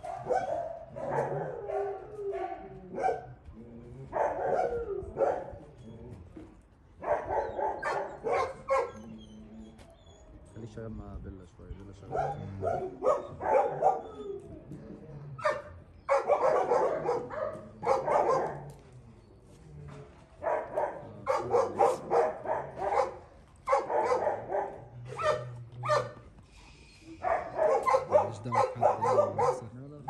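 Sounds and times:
dogs barking: 0.0s - 3.4s, 4.0s - 5.7s, 7.0s - 10.4s, 12.0s - 14.7s, 15.4s - 18.8s, 20.2s - 26.4s, 27.2s - 30.0s.

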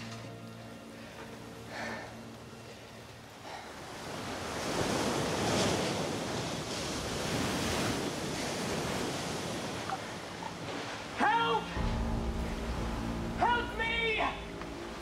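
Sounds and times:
sea waves washing on shore: 3.0s - 15.0s.

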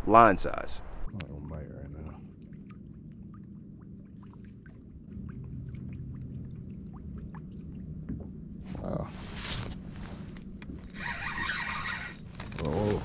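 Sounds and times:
low steady hum: 0.0s - 13.0s
water lapping against boat hull: 1.2s - 9.1s.

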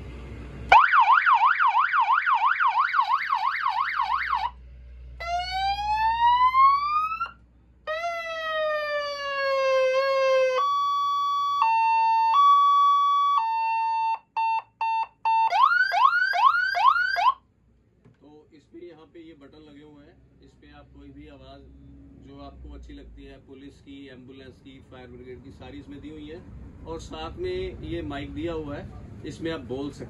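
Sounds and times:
electronic siren patterns: 0.7s - 4.6s, 5.2s - 17.4s.

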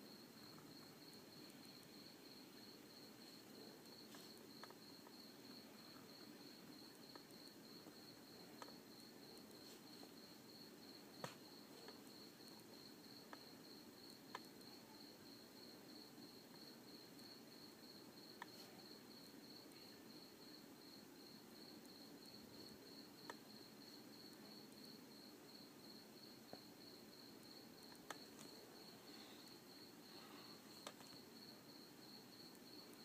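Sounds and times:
faint hiss: 0.0s - 33.0s
faint clicks: 27.8s - 28.6s, 30.7s - 31.2s.

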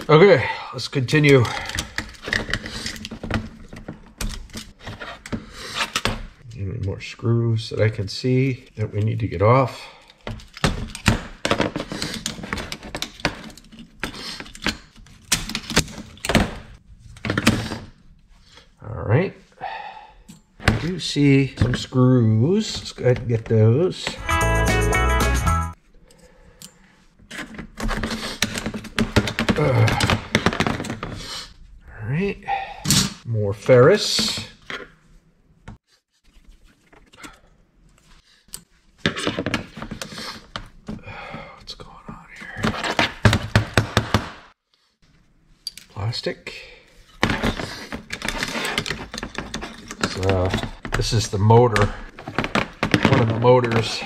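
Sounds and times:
metal and plastic scraping rattling: 1.1s - 6.2s, 10.1s - 17.9s, 47.1s - 54.0s.

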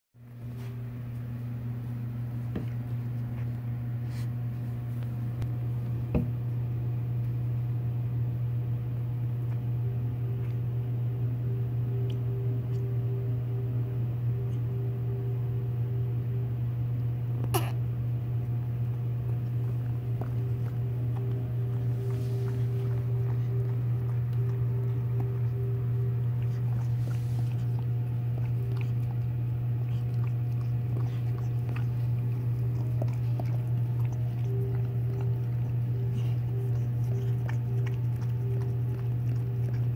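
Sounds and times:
steady low hum: 0.2s - 39.9s
faint higher tone: 9.8s - 17.3s, 20.0s - 28.3s.

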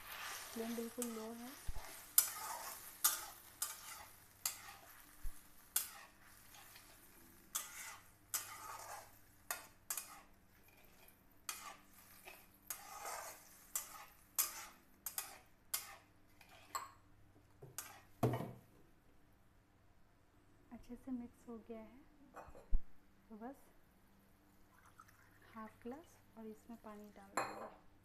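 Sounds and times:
metal spatula scraping metal pan: 0.0s - 16.8s, 17.8s - 18.1s.

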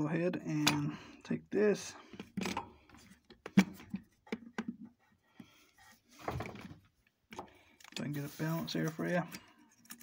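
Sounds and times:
rustle of handling: 8.0s - 9.3s.

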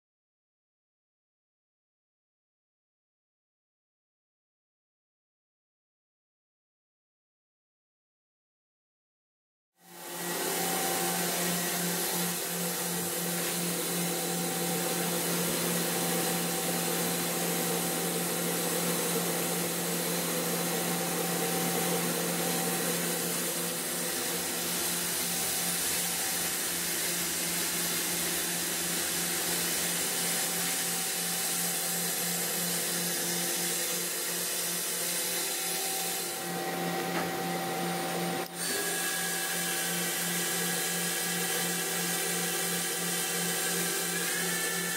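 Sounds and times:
machine hum and whir: 9.8s - 44.9s.

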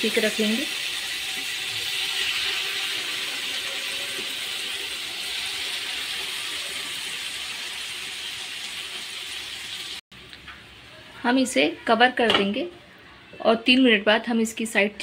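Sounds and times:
chicken sizzling in butter: 0.0s - 10.0s.

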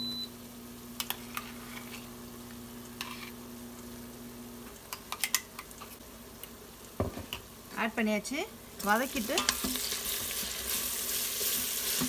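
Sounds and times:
onions sizzling in a pot: 0.1s - 12.0s
metal spoon scraping a pot: 3.0s - 3.4s.

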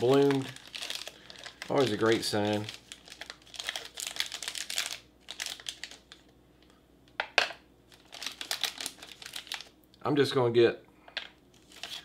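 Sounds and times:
foil wrapper crinkling: 0.0s - 6.3s, 7.9s - 9.8s, 11.6s - 12.0s.

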